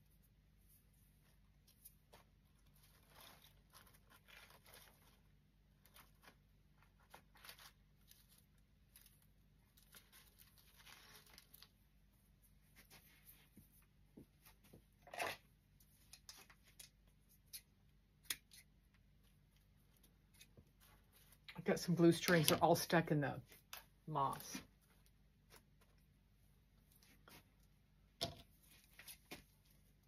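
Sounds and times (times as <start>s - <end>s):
rustling of handled flowers and twigs: 0.6s - 14.8s, 19.0s - 26.1s.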